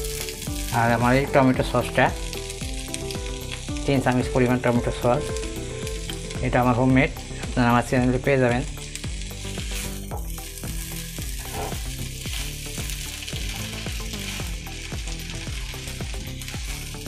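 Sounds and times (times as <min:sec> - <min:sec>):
food sizzling in a frying pan: 0:00.0 - 0:17.0
spatula scraping a pan: 0:09.7 - 0:12.4.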